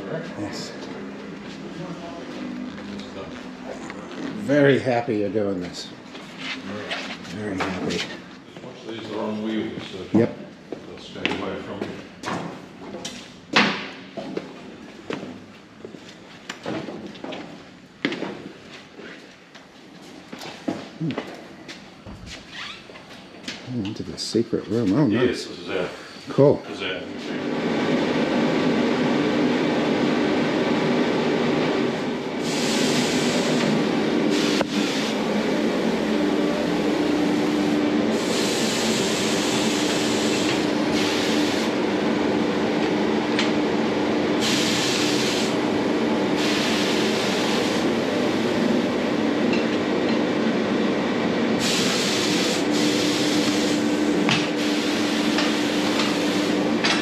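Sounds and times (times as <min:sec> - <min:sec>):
compressed air hissing: 0:32.4 - 0:33.7, 0:34.3 - 0:35.3, 0:36.8 - 0:41.8, 0:44.4 - 0:45.6, 0:46.3 - 0:47.9, 0:51.6 - 0:56.7.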